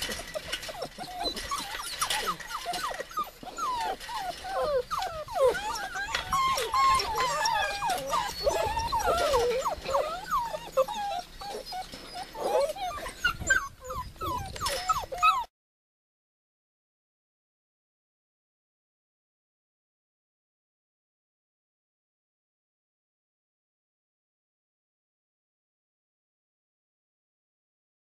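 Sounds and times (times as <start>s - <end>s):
puppies whining: 0.0s - 15.5s.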